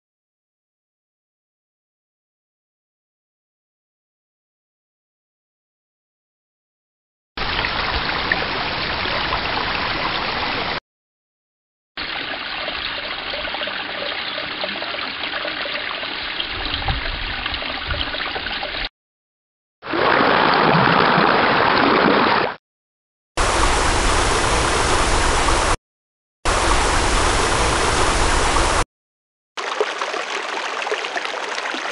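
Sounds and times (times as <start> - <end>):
stream water rushing and gurgling: 7.4 - 10.8, 19.8 - 22.6, 23.4 - 25.8, 26.5 - 28.8, 29.6 - 31.9.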